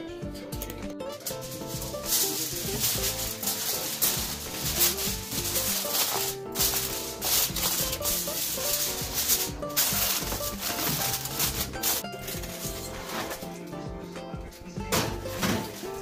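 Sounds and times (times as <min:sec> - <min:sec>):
music playing: 0:00.0 - 0:16.0
aluminium foil crinkling: 0:01.1 - 0:13.7.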